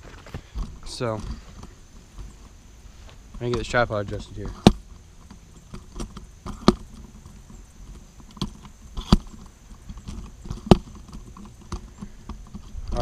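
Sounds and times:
tripod clicks and knocks: 3.4 - 13.0.

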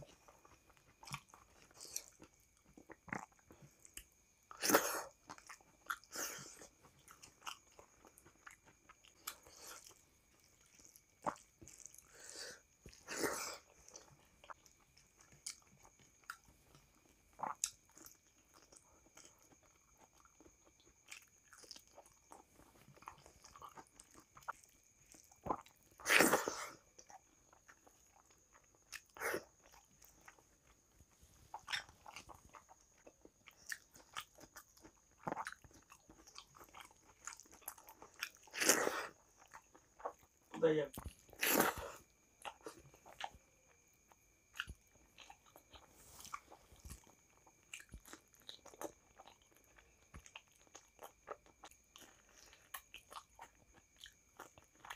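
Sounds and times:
chewing and lip smacks: 0.0 - 12.2, 12.8 - 54.9.

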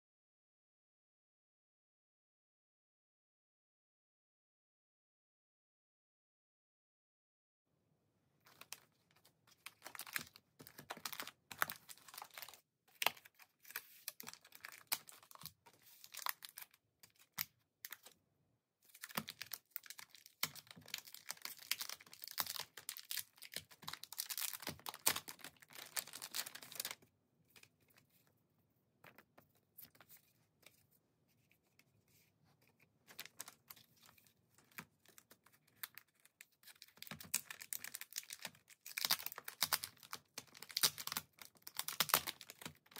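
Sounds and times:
plastic pouches crinkling: 8.5 - 18.1, 18.9 - 27.0, 33.1 - 42.9.

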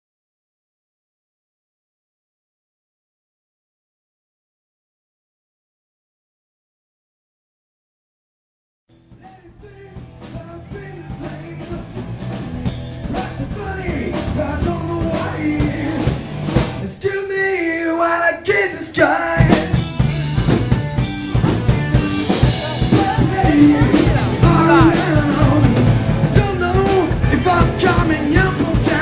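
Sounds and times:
drum kit: 8.9 - 17.2, 18.5 - 29.0
electric guitar: 9.0 - 17.0, 19.1 - 29.0
man singing: 9.2 - 12.3, 13.0 - 19.8, 22.0 - 29.0.

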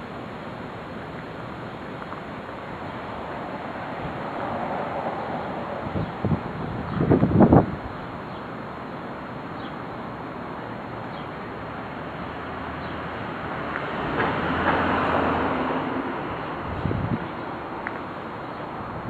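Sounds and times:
street background noise: 0.0 - 19.0
motor vehicle passing: 12.1 - 17.4.

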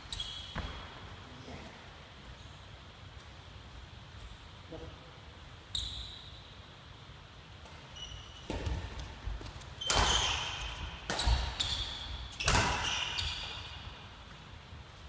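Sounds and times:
shoe squeaks: 0.0 - 0.8, 5.7 - 6.6, 7.8 - 8.9, 9.6 - 14.0
racket hitting shuttlecock: 7.6 - 14.0.

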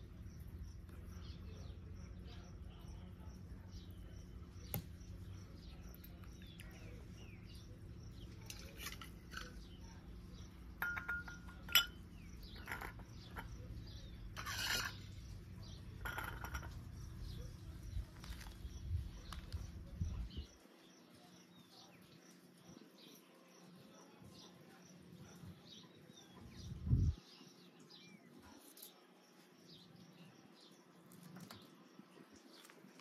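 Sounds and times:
coin clinking against glass bowl: 10.8 - 12.0, 16.0 - 16.8.

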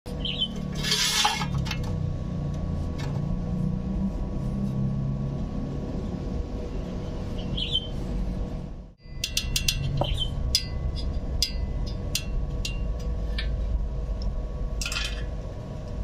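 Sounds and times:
bird chirping: 0.1 - 0.6, 6.6 - 8.0, 9.9 - 10.4
faint steady hum: 0.1 - 16.0
low mechanical engine rumble: 0.1 - 16.0.

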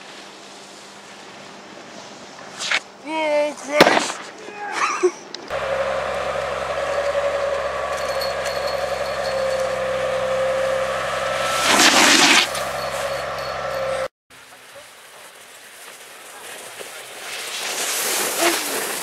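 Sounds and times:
snowboard skidding snow spray: 0.0 - 3.0, 3.7 - 4.4, 5.5 - 19.0
snowboard sliding over snow: 0.0 - 4.3, 5.5 - 19.0
steady hum: 5.5 - 14.1.

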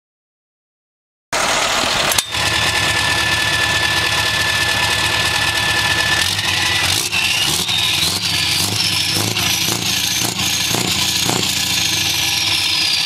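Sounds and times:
high whine rising in pitch: 1.4 - 13.0
truck engine exhaust: 1.4 - 13.0
high whistle: 5.4 - 13.0.

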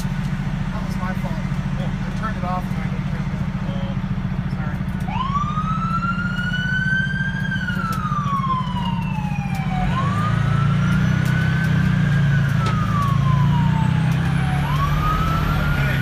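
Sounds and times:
diesel engine drone: 0.0 - 16.0
fire engine siren wailing: 0.0 - 16.0.

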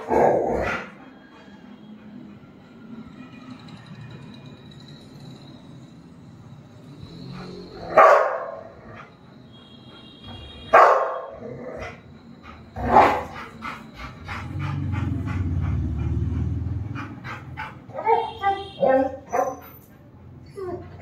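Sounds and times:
dog barking: 7.8 - 8.8, 10.7 - 11.4, 12.8 - 13.4, 17.9 - 19.6.

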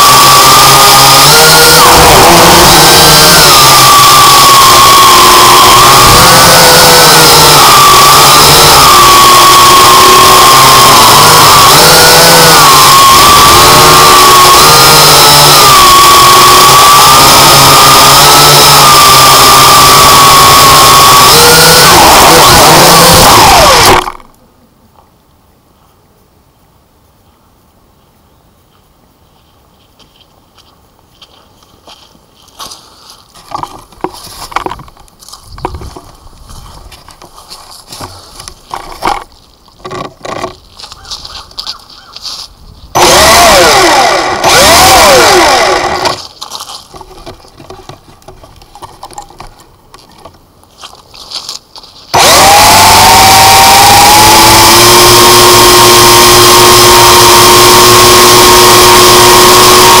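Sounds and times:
drone motors whining: 0.0 - 24.4, 42.9 - 49.5, 52.0 - 60.0.

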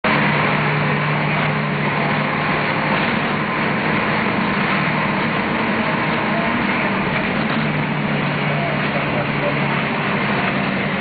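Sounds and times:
bus engine drone: 0.0 - 11.0
road and cabin rumble: 0.0 - 11.0.

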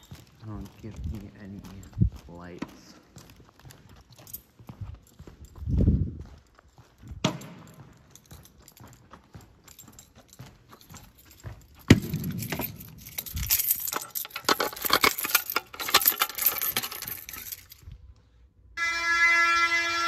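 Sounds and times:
rattling clicks: 10.8 - 17.9
fire alarm horn: 18.8 - 20.0.

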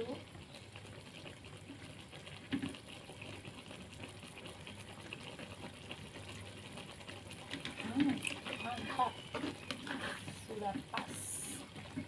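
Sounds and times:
sauce bubbling in pan: 0.0 - 12.0.

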